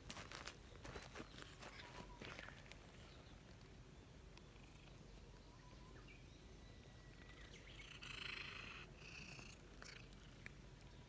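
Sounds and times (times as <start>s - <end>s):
soft rustle: 0.0s - 3.8s
cat purring: 7.2s - 10.9s.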